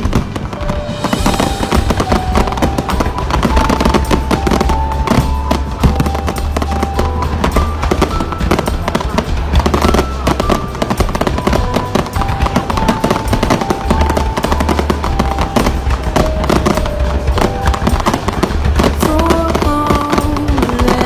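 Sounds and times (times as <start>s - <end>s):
fireworks bangs and crackles: 0.0s - 21.0s
music with long held notes: 0.0s - 21.0s.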